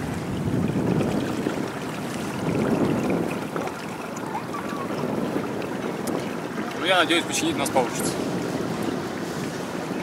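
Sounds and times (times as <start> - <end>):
water washing along a hull: 0.0 - 10.0
wind rushing over microphone: 0.0 - 10.0.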